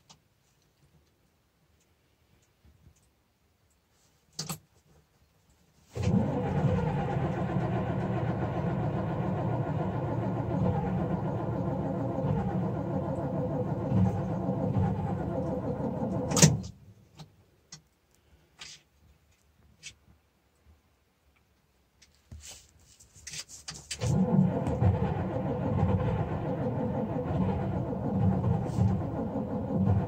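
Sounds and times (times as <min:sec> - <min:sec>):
diesel engine starter cranking: 0:06.0 - 0:16.8, 0:24.0 - 0:30.0.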